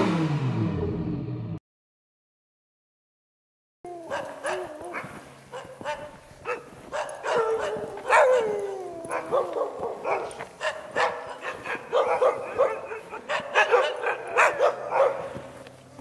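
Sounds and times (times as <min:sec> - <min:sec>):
dog long howl: 0:03.9 - 0:05.2, 0:07.2 - 0:10.4
huskies barking and yipping: 0:03.9 - 0:16.0.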